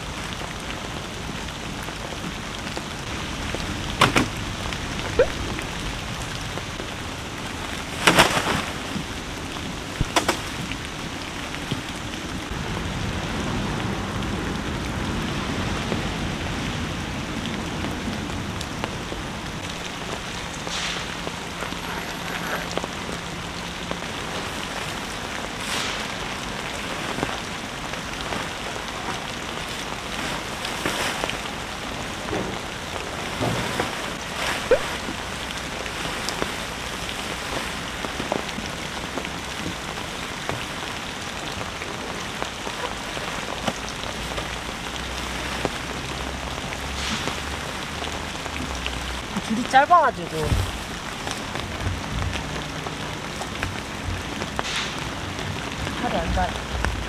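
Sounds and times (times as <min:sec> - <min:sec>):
heavy rain on wood and fabric: 0:00.0 - 0:57.0
nylon tent fly rustling: 0:06.6 - 0:11.7, 0:19.6 - 0:48.1.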